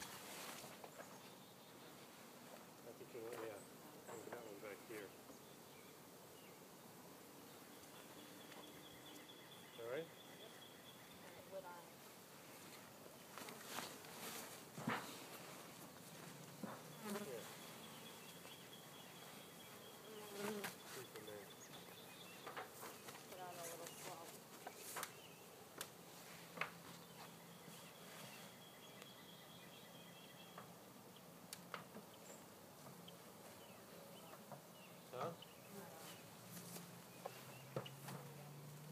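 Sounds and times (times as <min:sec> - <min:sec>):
honeybees buzzing: 0:00.0 - 0:29.0, 0:30.6 - 0:38.9
honeybees buzzing past: 0:10.7 - 0:28.6.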